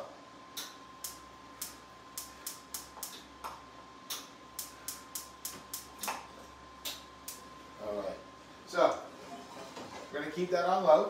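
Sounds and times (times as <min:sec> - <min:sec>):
gas burner igniter clicking: 0:00.6 - 0:03.2, 0:04.1 - 0:06.2.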